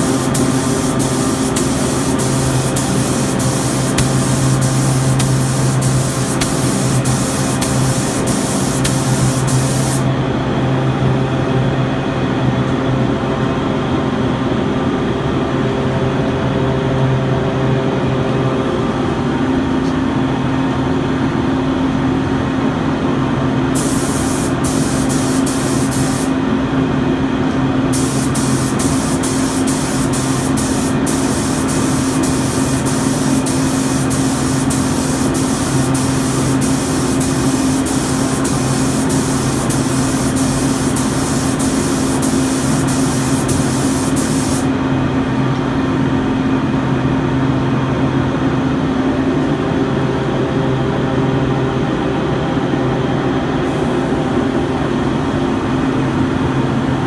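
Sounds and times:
spray gun hissing: 0.0 - 10.1, 23.8 - 26.4, 27.9 - 44.7
exhaust fan humming: 0.0 - 12.7, 15.9 - 46.4.

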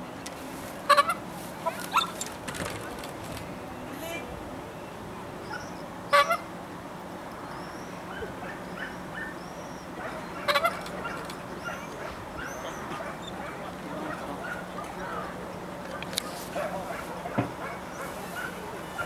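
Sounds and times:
dog whining and yipping: 1.7 - 2.3
dog barking: 8.1 - 9.4, 10.0 - 15.3, 16.5 - 19.0.

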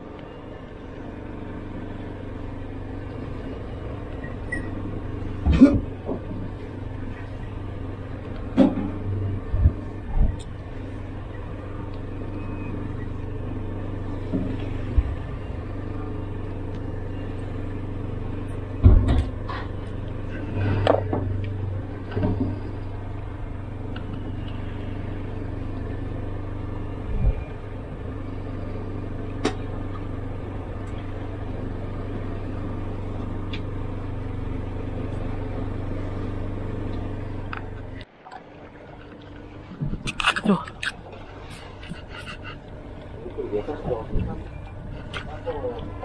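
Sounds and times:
boat engine droning: 0.0 - 46.0.

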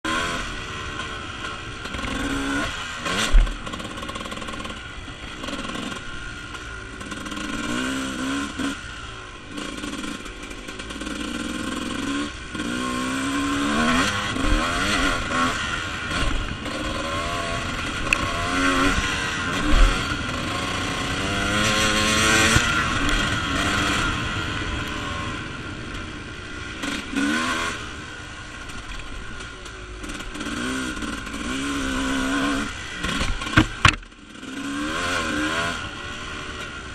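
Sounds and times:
dirt bike engine revving: 0.1 - 36.9
sharp thumps: 33.0 - 34.2.

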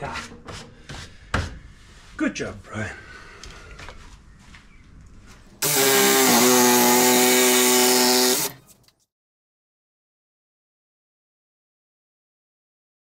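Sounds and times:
cordless power tool whine: 5.6 - 8.6.

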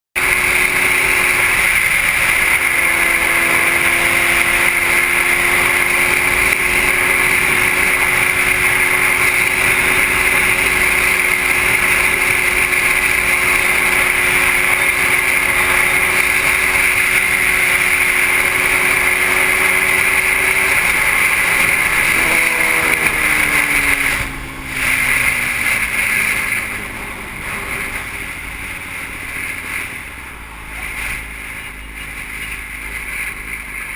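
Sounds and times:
motorcycle engine running: 0.2 - 33.9.

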